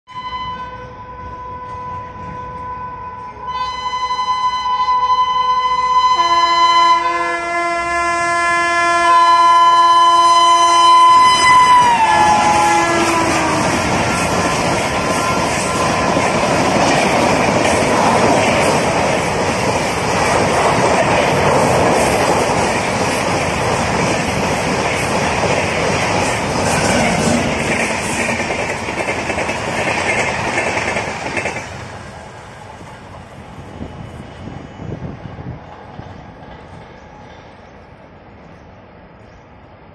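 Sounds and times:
train horn blast: 0:00.1 - 0:14.2
train wheels clattering over rails: 0:11.9 - 0:32.2.

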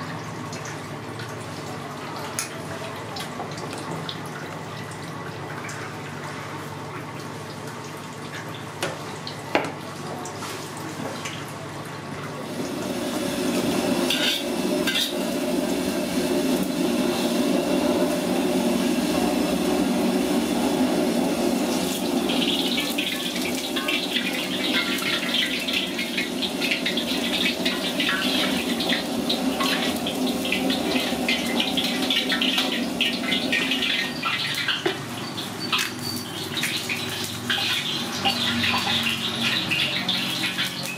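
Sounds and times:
kitchen noise hiss: 0:12.3 - 0:40.9
oil sizzling and crackling in wok: 0:12.4 - 0:40.9.

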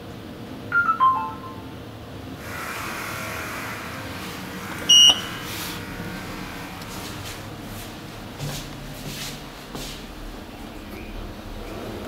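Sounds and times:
elevator car running: 0:00.0 - 0:12.0
short high beep: 0:00.7 - 0:01.7, 0:04.9 - 0:05.3
descending electronic chime: 0:00.7 - 0:01.8.

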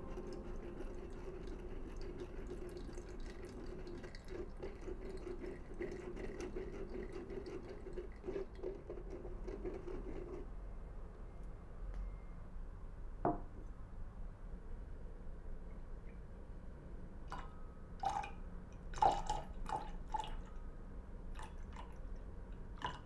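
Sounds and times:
juice dripping through strainer: 0:00.0 - 0:10.4, 0:17.2 - 0:20.6, 0:21.3 - 0:23.0.

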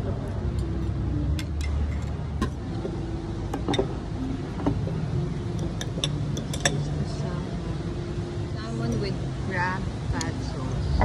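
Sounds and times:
tableware clinking: 0:01.4 - 0:04.0, 0:04.6 - 0:07.2.

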